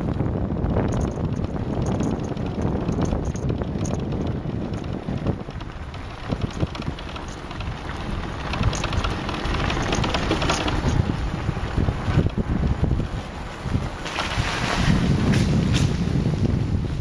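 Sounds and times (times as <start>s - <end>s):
motorbike low rumble: 0.0s - 17.0s
wind buffeting microphone: 0.0s - 17.0s
knocks and rattles on cobbles: 0.7s - 11.3s.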